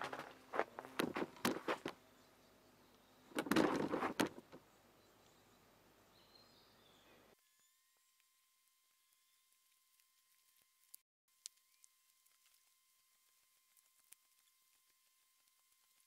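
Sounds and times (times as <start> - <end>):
footsteps on loose soil: 0.0 - 2.0
scraping rustle: 0.0 - 2.0, 3.3 - 4.6
faint outdoor background: 0.0 - 16.0.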